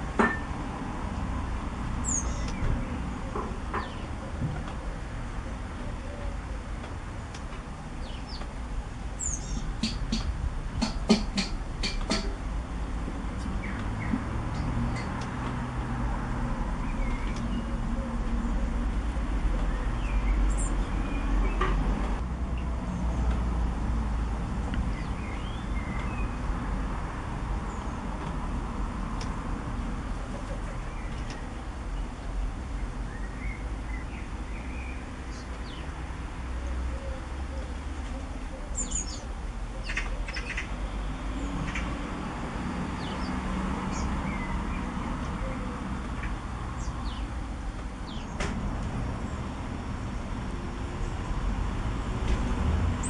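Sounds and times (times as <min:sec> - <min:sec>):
small birds chirping: 0:02.0 - 0:05.0, 0:05.9 - 0:08.6, 0:09.2 - 0:11.5, 0:13.4 - 0:15.3, 0:16.7 - 0:21.8, 0:24.8 - 0:26.6, 0:30.3 - 0:36.0, 0:36.8 - 0:42.0, 0:43.0 - 0:48.4.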